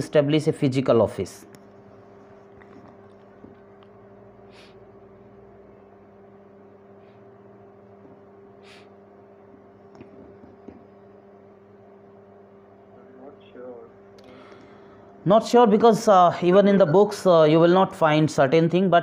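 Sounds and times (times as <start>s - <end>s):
steady low hum: 0.0s - 19.0s
short breaths: 4.5s - 4.8s, 8.6s - 9.0s, 14.2s - 15.1s.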